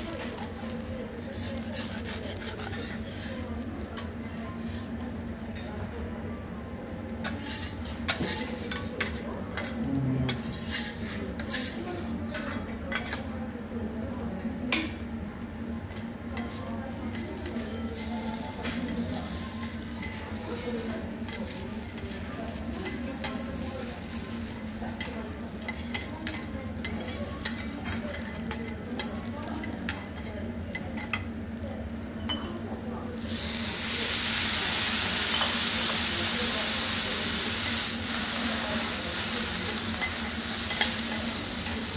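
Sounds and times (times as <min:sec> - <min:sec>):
food sizzling on a griddle: 0:00.0 - 0:06.0, 0:07.0 - 0:41.9
metal spatulas clicking and scraping: 0:25.0 - 0:31.2, 0:40.0 - 0:41.0
loud steady hiss: 0:33.2 - 0:41.9.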